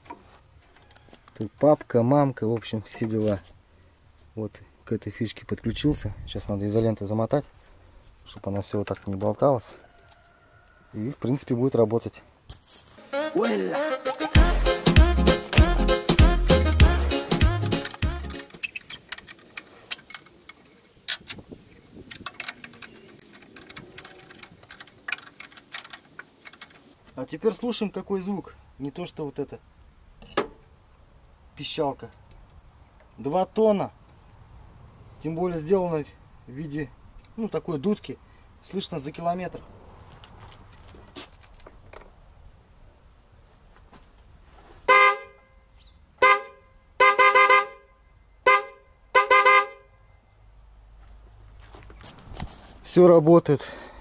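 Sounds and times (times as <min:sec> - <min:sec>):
two-tone car horn blasts: 0:44.9 - 0:45.6, 0:46.2 - 0:50.1.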